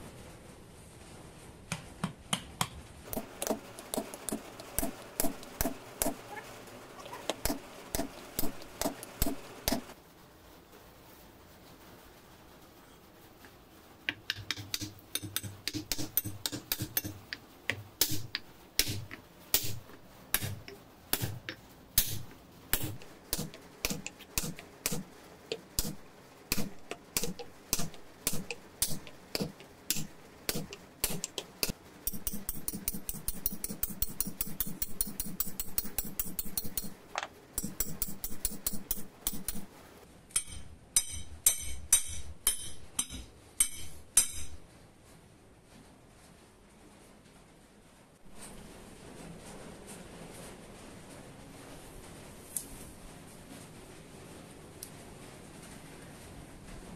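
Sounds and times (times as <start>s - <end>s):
hammer striking wooden block: 14.1s - 19.8s, 40.4s - 44.6s.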